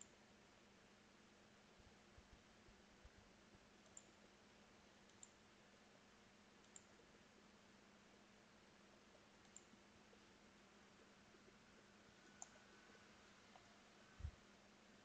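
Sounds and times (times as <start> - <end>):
faint steady hiss: 0.0 - 15.0
computer mouse clicks: 3.8 - 4.2, 5.0 - 5.4, 6.6 - 7.0, 9.3 - 9.8, 12.2 - 12.8.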